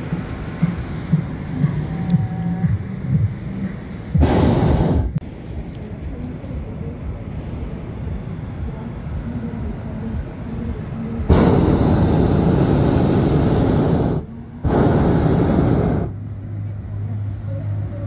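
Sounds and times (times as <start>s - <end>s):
low steady rumble: 0.0s - 18.0s
propane burner roaring: 4.1s - 5.2s, 11.2s - 16.2s.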